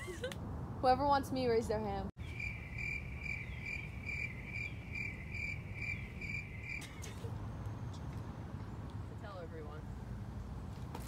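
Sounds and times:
crickets chirping: 2.2s - 6.9s.

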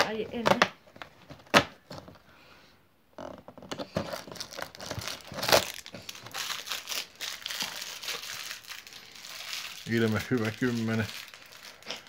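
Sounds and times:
sharp cardboard crackle: 3.2s - 12.0s
cardboard crinkling and tearing: 3.8s - 12.0s.

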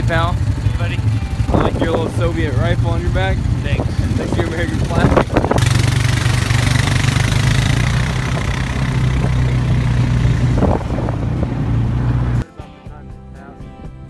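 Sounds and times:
background music: 0.0s - 5.0s, 5.6s - 14.0s
atv engine running: 0.0s - 12.4s.

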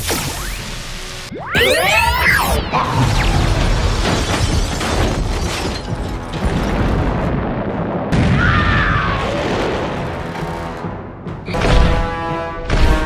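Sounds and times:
loud explosions: 2.8s - 11.8s.

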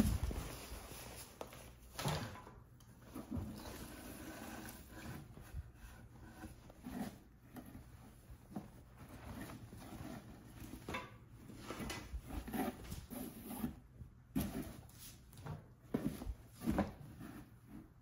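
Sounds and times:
fabric and paper rustling: 0.0s - 2.0s.

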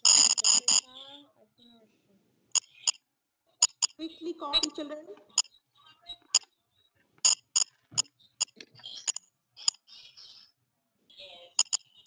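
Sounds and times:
small hard objects clicking: 11.6s - 11.8s.

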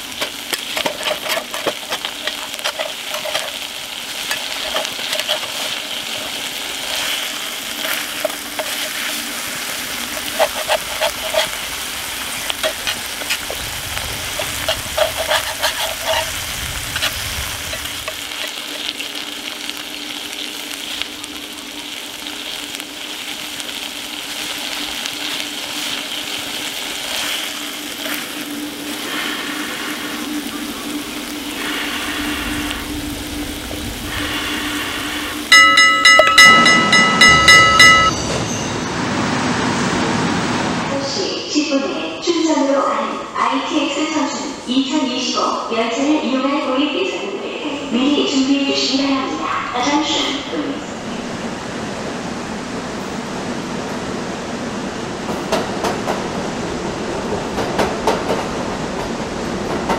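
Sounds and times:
food sizzling in a skillet: 0.0s - 38.7s
wooden spatula scraping a pan: 0.1s - 18.9s.

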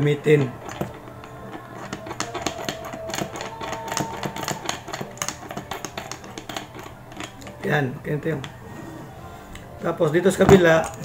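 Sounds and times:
metal parts clicking and tapping: 0.0s - 8.6s, 9.5s - 11.0s.

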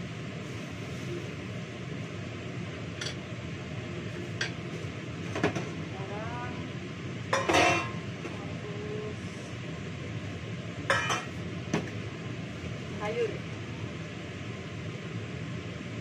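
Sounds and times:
metal bowl and utensils clattering: 7.3s - 8.0s, 10.9s - 11.3s
metal kitchenware clinking: 7.3s - 8.0s, 10.9s - 11.3s.

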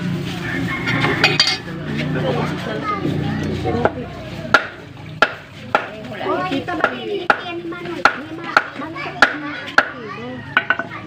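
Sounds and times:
knife chopping fish on wood: 4.5s - 6.1s, 6.8s - 10.0s.

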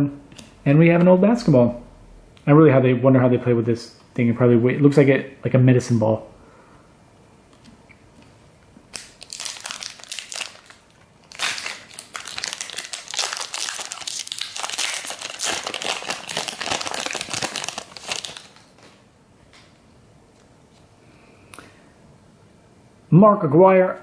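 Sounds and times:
foil wrapper crinkling: 8.9s - 19.0s.

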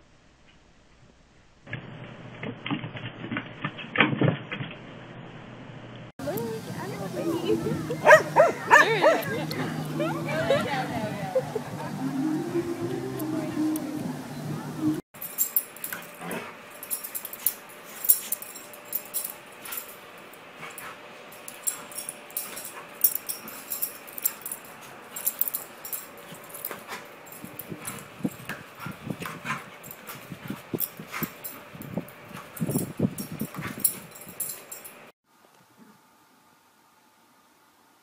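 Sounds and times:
dog claws clicking and scuffling: 15.2s - 20.0s, 20.6s - 35.0s.

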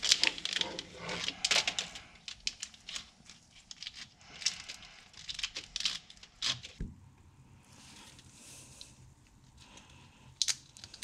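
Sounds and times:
plastic wire loom crinkling and clicking: 0.0s - 6.8s.

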